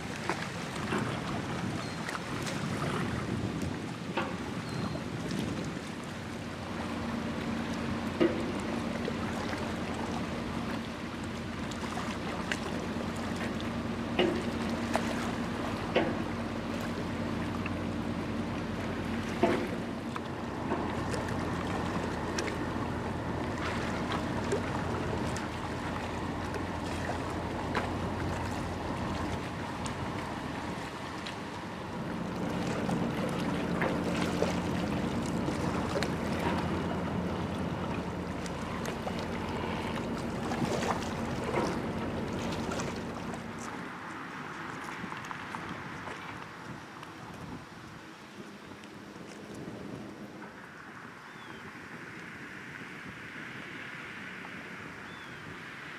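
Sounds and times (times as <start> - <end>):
boat engines droning: 0.0 - 55.9
water noise: 0.0 - 55.9
wind: 0.0 - 55.9.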